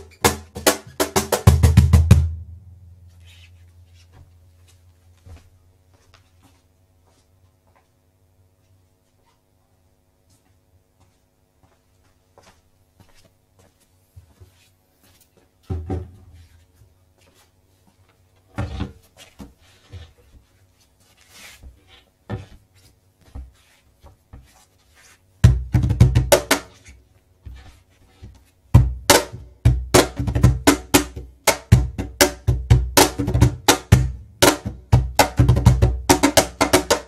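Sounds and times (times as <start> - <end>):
cajon drum played by hand: 0.0 - 2.6, 15.7 - 16.4, 25.4 - 26.9, 28.7 - 37.0.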